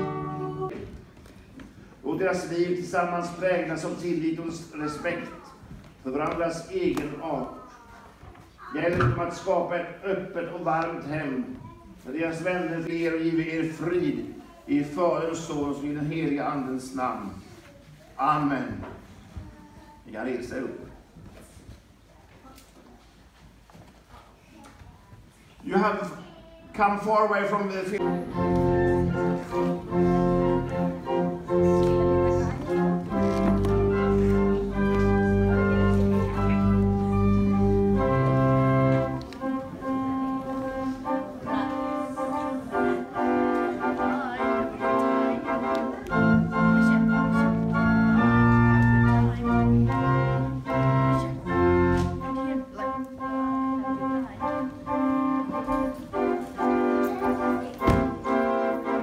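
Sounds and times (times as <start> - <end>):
church organ playing chords: 0.0 - 0.7, 27.9 - 52.6, 53.2 - 59.0.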